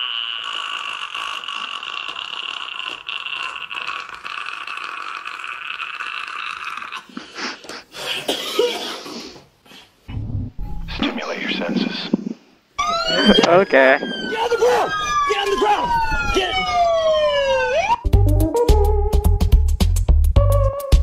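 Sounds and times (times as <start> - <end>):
ragged breathy noises: 7.0 - 12.7
man screaming high-pitched: 12.8 - 18.0.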